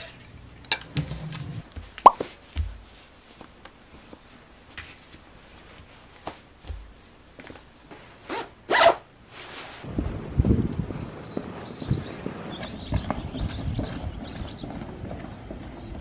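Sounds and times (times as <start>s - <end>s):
socks rustling: 1.6s - 9.9s
jacket zipper being zipped: 8.3s - 9.8s.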